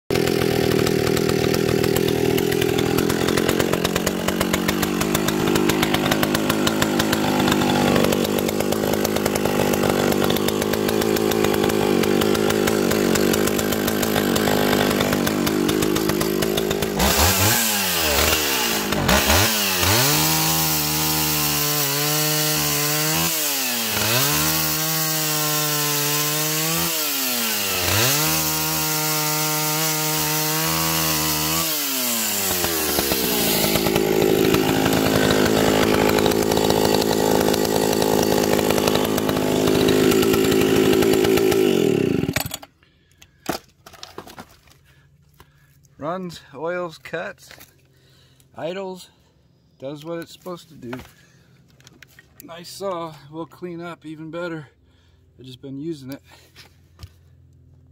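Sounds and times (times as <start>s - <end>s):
chainsaw cutting wood: 0.1s - 45.7s.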